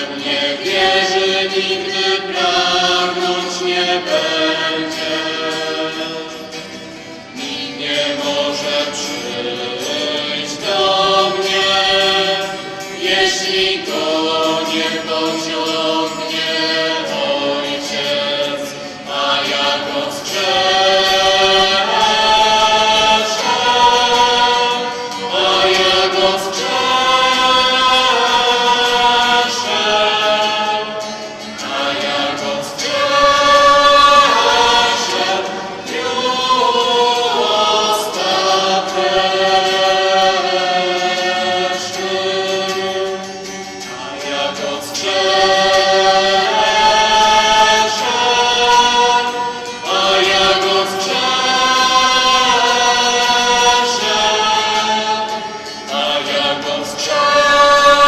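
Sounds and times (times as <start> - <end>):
choir singing a hymn: 0.0 - 58.0.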